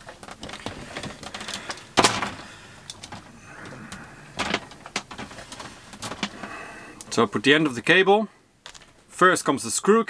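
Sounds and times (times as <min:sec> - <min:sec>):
cable rustling scrape: 0:00.0 - 0:07.2
electrical cable clicks and rattles: 0:00.0 - 0:07.2.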